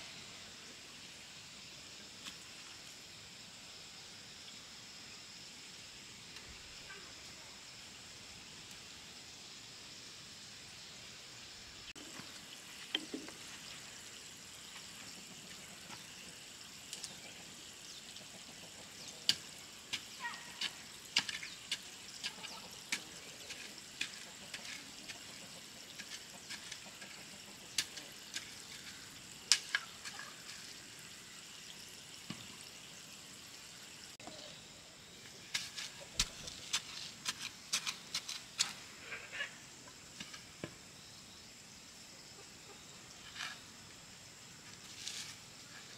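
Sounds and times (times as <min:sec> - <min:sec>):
faint high hiss: 0:00.0 - 0:23.8, 0:27.1 - 0:45.9
hand hoe chopping soil: 0:19.3 - 0:28.9, 0:35.5 - 0:38.8.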